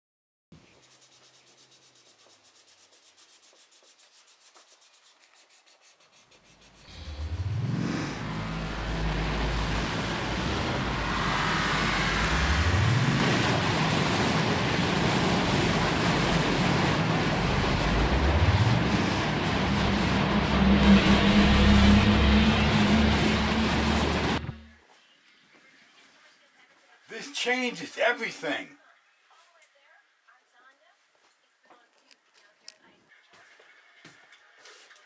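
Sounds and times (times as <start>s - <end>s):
vehicle engine revving: 6.7s - 24.8s.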